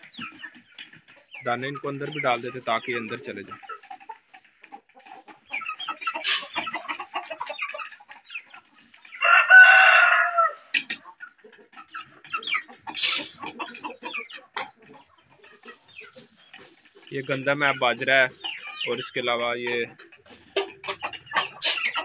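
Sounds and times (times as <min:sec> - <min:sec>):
chickens clucking: 0:00.0 - 0:22.0
rooster crowing: 0:09.2 - 0:10.6.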